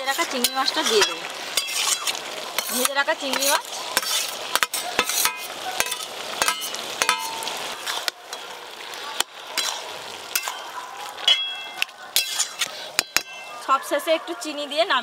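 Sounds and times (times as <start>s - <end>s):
metal spatula scraping pan: 0.0s - 8.5s, 9.2s - 13.6s
food sizzling: 0.0s - 15.0s
pan ringing: 11.2s - 11.8s.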